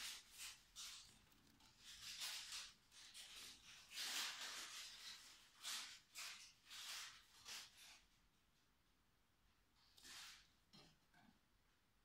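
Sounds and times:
rustling of dry nesting material: 0.0s - 8.0s.

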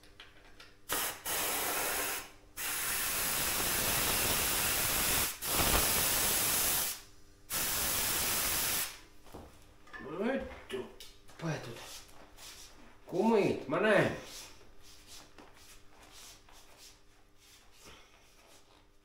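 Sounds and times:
compressed air hissing: 0.9s - 9.0s.

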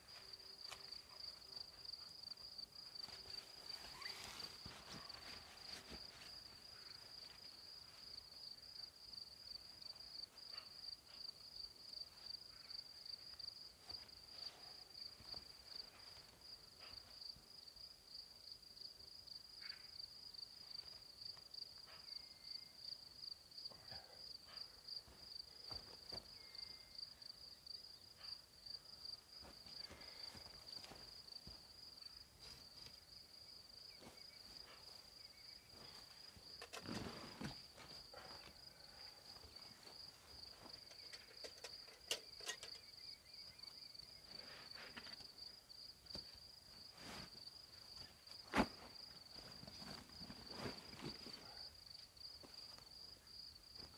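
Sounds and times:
crickets chirping: 0.0s - 53.9s
soft rustles: 3.0s - 8.1s, 35.7s - 38.6s, 46.1s - 51.6s.

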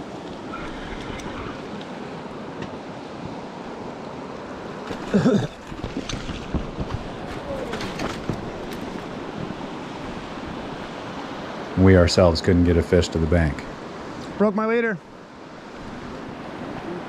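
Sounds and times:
wind on microphone: 0.0s - 2.5s.

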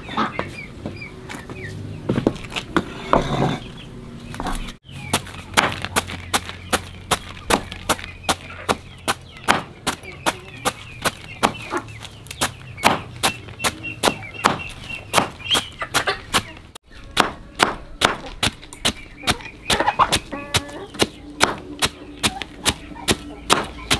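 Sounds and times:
cleaver chopping on concrete: 5.1s - 16.5s, 17.2s - 23.9s.

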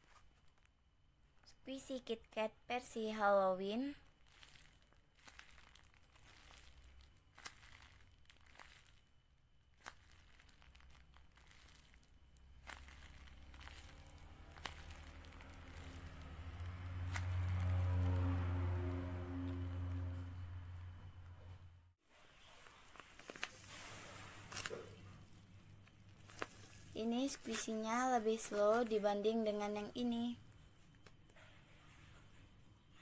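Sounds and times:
paper squishy crinkling: 3.4s - 20.2s, 22.2s - 30.2s.

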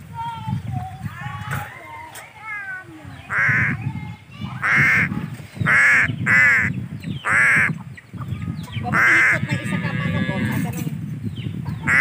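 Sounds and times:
crows cawing: 3.3s - 3.8s, 5.7s - 7.7s, 8.9s - 10.2s.

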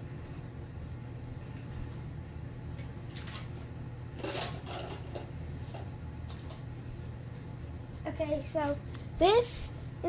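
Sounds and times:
steady low hum: 0.0s - 10.0s
plastic pieces clattering: 4.2s - 5.2s.

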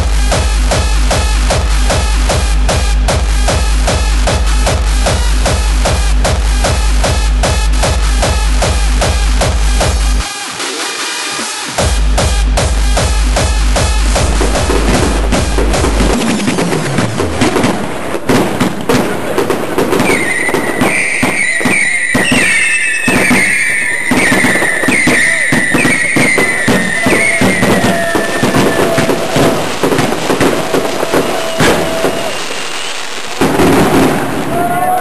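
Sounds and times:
firework rapid bangs and crackling: 12.4s - 35.0s
firework whistling tones: 14.1s - 35.0s.

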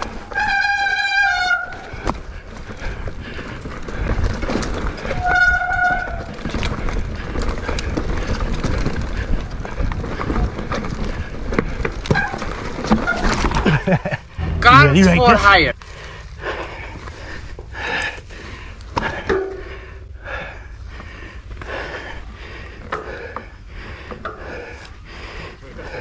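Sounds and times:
low rumble: 14.3s - 22.8s.

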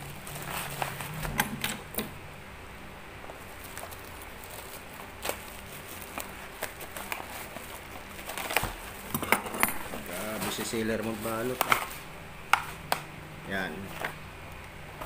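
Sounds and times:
plastic wrapping crinkling: 0.0s - 1.2s, 3.3s - 9.2s, 9.8s - 12.0s
faint background hum: 0.0s - 15.0s.

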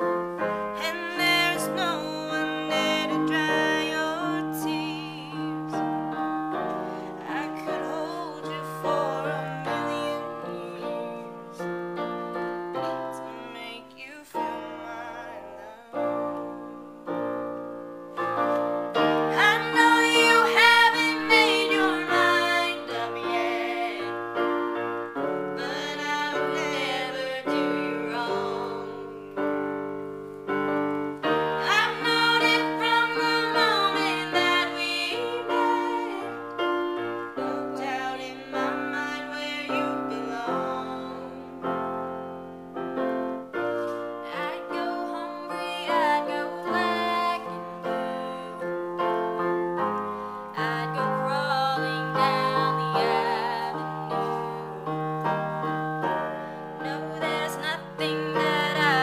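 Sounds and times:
piano chords: 0.0s - 59.0s
woman singing: 0.8s - 6.0s, 7.0s - 11.6s, 12.7s - 16.3s, 19.2s - 24.2s, 25.6s - 29.4s, 31.6s - 36.5s, 37.1s - 41.7s, 44.2s - 49.8s, 50.5s - 54.9s, 56.8s - 59.0s.

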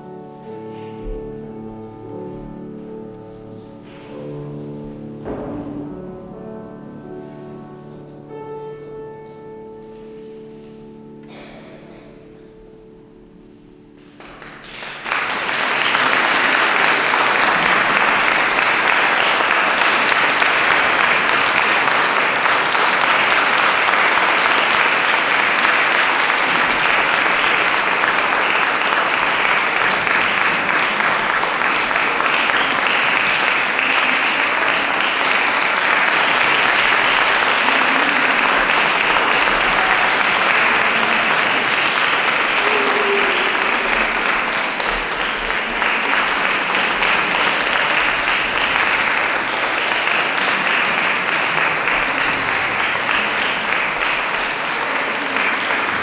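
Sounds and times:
audience applauding: 14.0s - 56.0s.

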